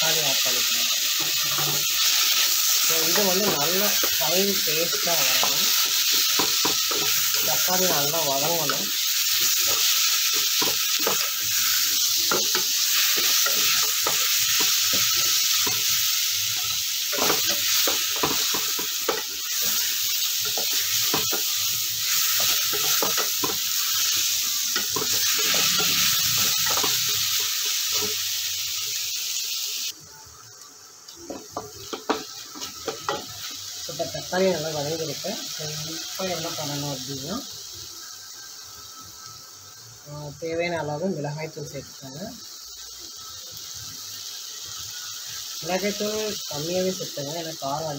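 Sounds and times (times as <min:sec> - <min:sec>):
vegetables sizzling in oil: 0:00.0 - 0:47.9.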